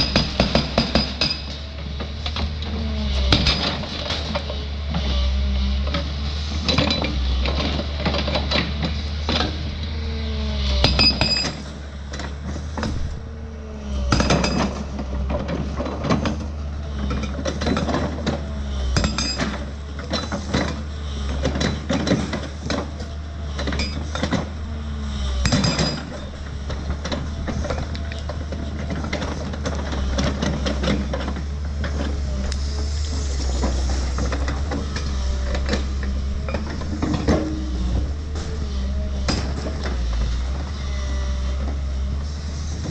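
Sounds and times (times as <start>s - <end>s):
hydraulic breaker clanking on rock: 0.0s - 1.6s, 3.3s - 4.4s, 10.8s - 13.2s, 14.1s - 24.6s, 25.4s - 40.6s
diesel engine running: 0.0s - 42.9s.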